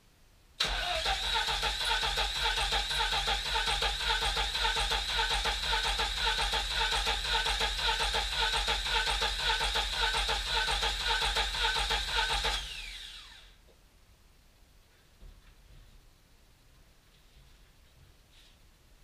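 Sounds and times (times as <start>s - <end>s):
starter motor cranking engine: 0.6s - 13.5s.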